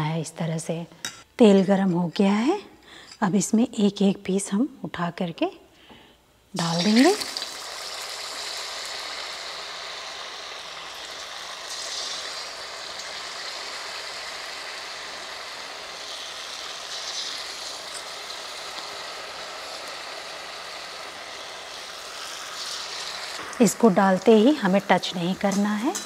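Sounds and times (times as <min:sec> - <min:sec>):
deep-frying sizzle and crackle: 0:06.6 - 0:26.0.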